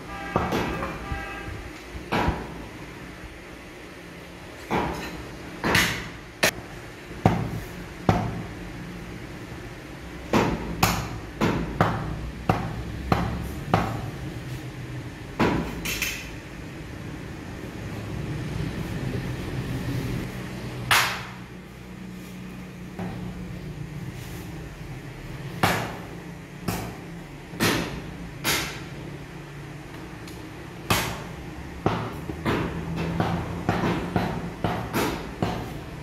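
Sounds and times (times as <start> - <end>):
cleaver chopping meat on wood: 10.3 - 14.1, 25.6 - 26.0, 30.9 - 35.7.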